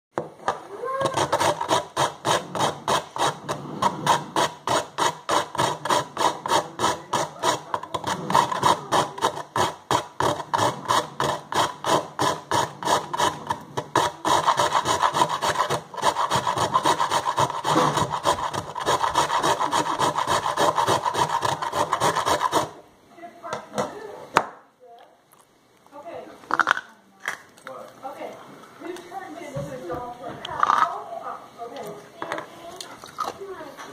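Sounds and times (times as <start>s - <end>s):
ice scraping on metal grater: 1.0s - 22.8s.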